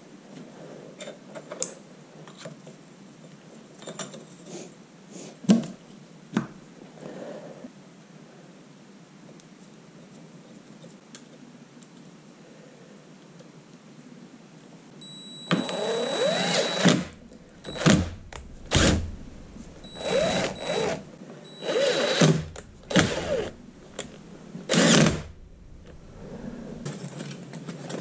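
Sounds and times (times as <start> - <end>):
impact driver motor whining: 15.5 - 26.8.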